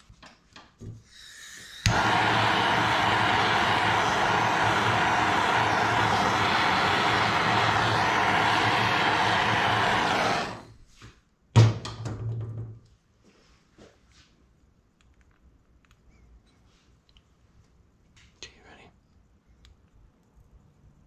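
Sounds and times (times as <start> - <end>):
torch flame hissing: 1.4 - 10.8.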